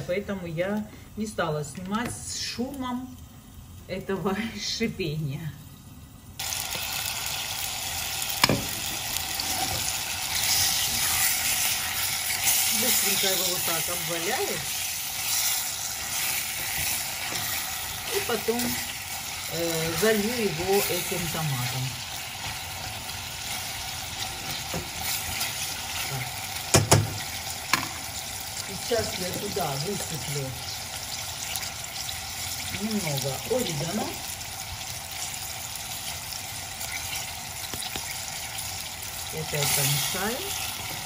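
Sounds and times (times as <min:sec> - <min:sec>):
meat sizzling in oil: 0:06.3 - 0:41.0
sharp knocks against a pot: 0:08.4 - 0:08.8, 0:26.7 - 0:28.0
spatula stirring in a pot: 0:08.6 - 0:27.8.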